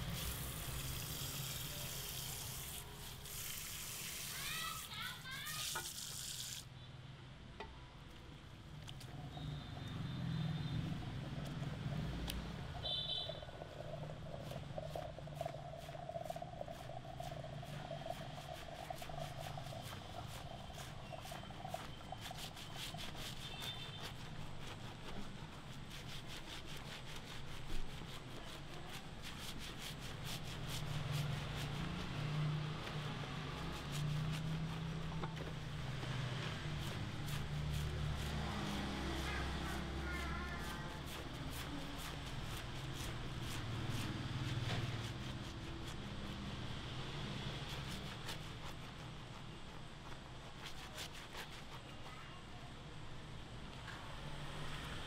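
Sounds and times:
fingers scrubbing lathered hair: 0.0s - 6.6s, 10.8s - 52.3s
shower sprayer spraying water: 0.0s - 6.7s, 14.0s - 49.0s.

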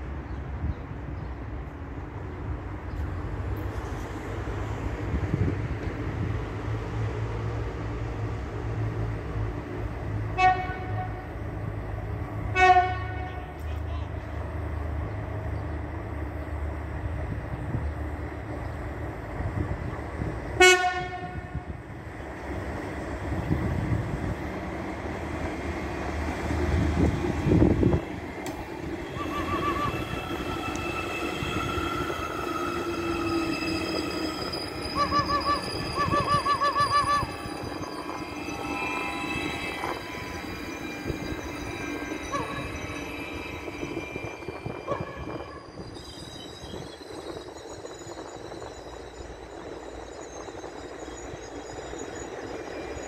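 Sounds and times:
train low rumble: 0.0s - 53.0s
train horn blast: 10.3s - 11.3s, 12.5s - 13.6s, 20.6s - 21.7s, 29.2s - 30.8s, 44.9s - 45.6s
steady high tones ringing: 28.0s - 53.0s.

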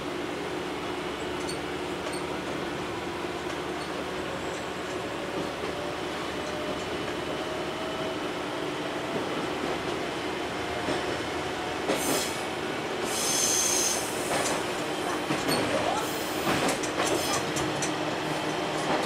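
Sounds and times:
diesel railcar engine and rolling: 0.0s - 19.0s
train wheels squealing: 13.0s - 14.4s
train wheels clicking over points: 13.0s - 19.0s.

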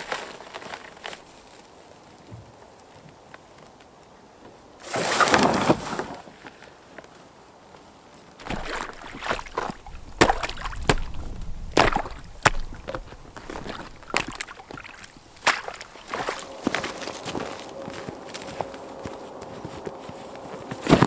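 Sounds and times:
ice cracking and crunching: 0.0s - 1.7s, 8.4s - 21.0s
boots stepping on ice: 8.4s - 21.0s
canoe hull scraping across ice: 8.4s - 21.0s.

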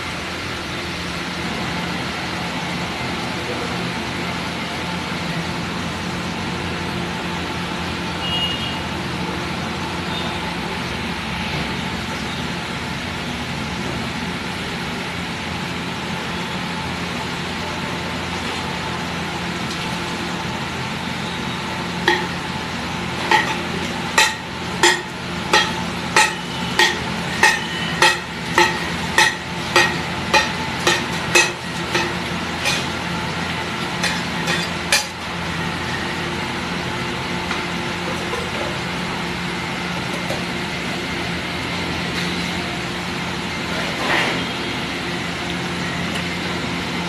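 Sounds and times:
metal spatula clacking on griddle: 22.1s - 22.4s, 23.3s - 32.9s, 34.0s - 35.2s.

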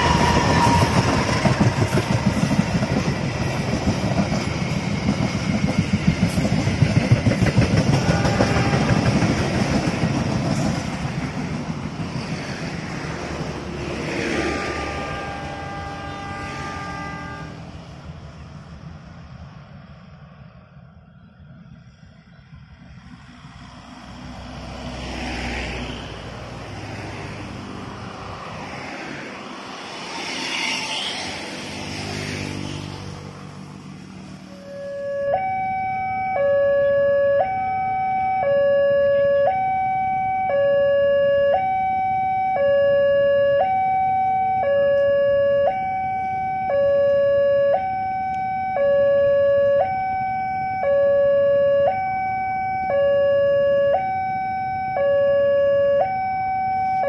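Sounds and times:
two-tone railway warning signal: 0.0s - 2.7s, 7.8s - 10.2s, 14.2s - 17.6s, 34.5s - 57.0s
passenger train passing: 0.0s - 57.0s.

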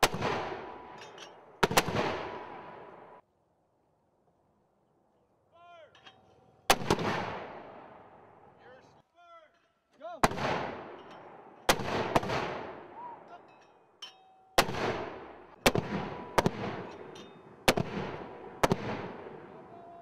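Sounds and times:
mortars firing: 0.0s - 3.2s, 6.7s - 8.1s, 10.2s - 13.3s, 14.6s - 19.6s
rolling echo: 0.0s - 3.2s, 10.2s - 13.5s, 14.6s - 20.0s.

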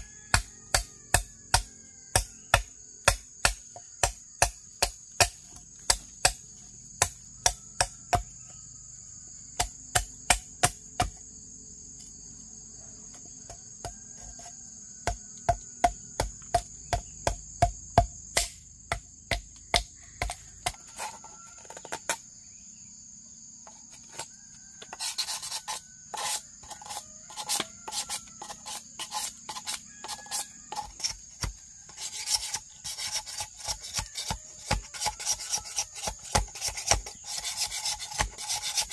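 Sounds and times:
high insect buzz: 20.0s - 38.9s
rasping scraping strokes: 20.2s - 22.2s, 23.7s - 38.9s.

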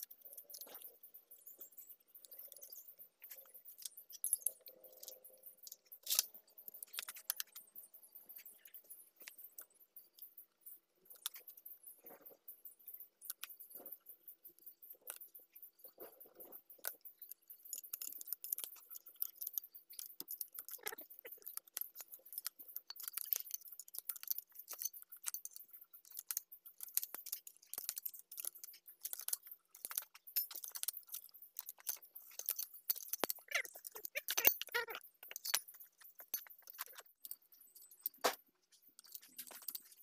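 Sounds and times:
ratchet and wrenches clicking: 13.2s - 40.0s.

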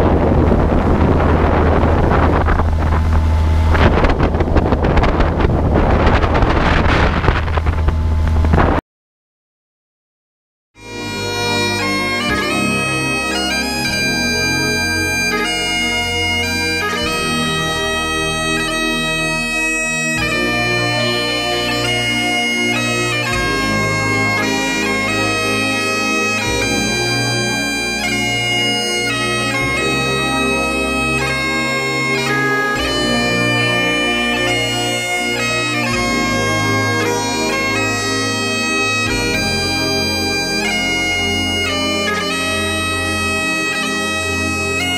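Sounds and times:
low sustained accompaniment: 0.0s - 8.5s, 10.8s - 44.7s
bagpipes playing a melody: 10.8s - 44.9s.

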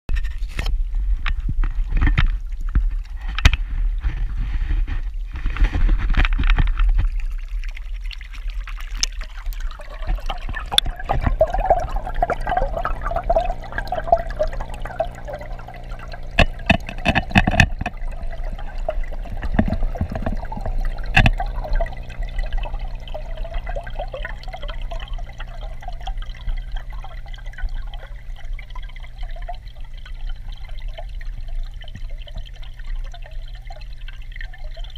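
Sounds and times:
underwater gurgling and trickling: 0.1s - 34.9s
steady low hum: 9.0s - 34.9s.

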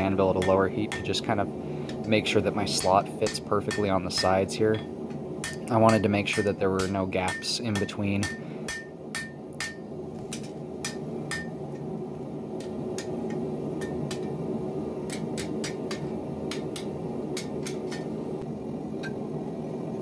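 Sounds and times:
hammer tapping metal on anvil: 0.3s - 1.2s, 2.7s - 11.8s, 12.6s - 14.4s, 15.1s - 18.2s.

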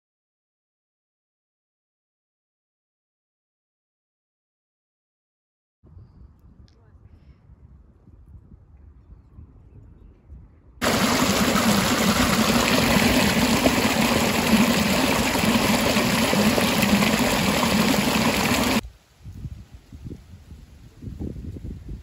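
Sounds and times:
water gushing into a furrow: 10.8s - 18.8s.

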